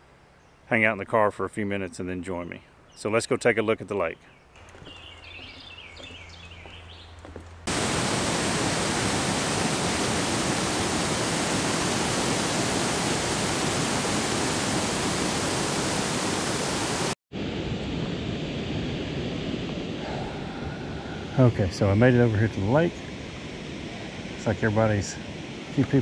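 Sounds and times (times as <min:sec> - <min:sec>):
faint birdsong: 0:00.0 - 0:07.6
water pouring over spillway: 0:07.7 - 0:17.1.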